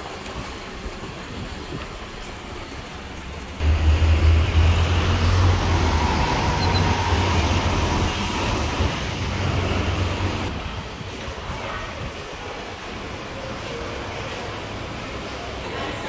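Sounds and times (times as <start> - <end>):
road traffic rumble: 3.6 - 11.0.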